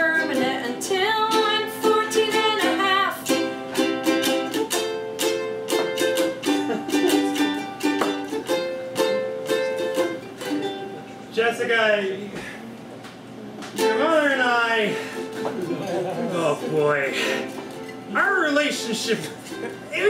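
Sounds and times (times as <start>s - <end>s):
person singing: 0.0s - 3.5s
ukulele strumming: 0.0s - 11.4s, 13.7s - 20.0s.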